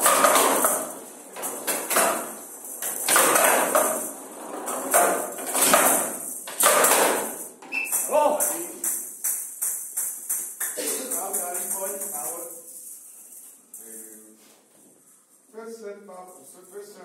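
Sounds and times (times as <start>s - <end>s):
ball knocking off wooden bats: 0.0s - 4.1s
jingling ball rattle: 11.2s - 14.2s.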